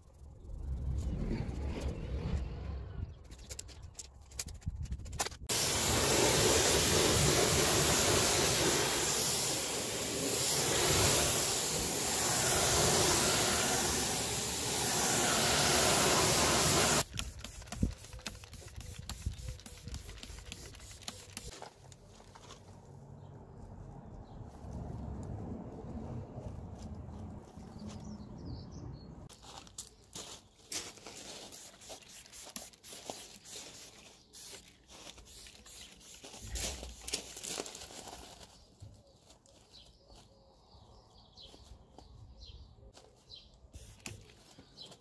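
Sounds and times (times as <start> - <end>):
pressure washer spraying water: 5.5 - 21.5.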